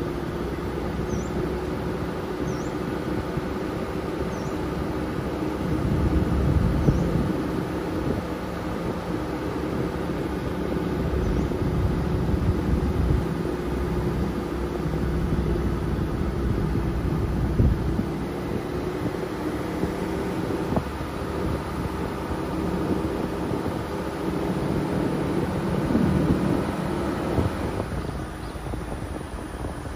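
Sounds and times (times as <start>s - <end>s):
car engine and tyres rumbling: 0.0s - 29.9s.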